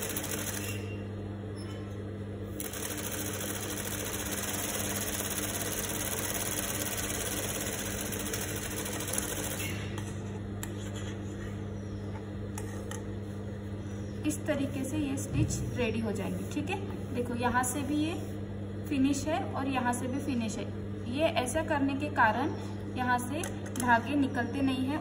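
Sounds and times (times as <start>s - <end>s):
sewing machine stitching: 0.0s - 0.8s, 2.6s - 9.6s
motor hum: 0.0s - 1.6s.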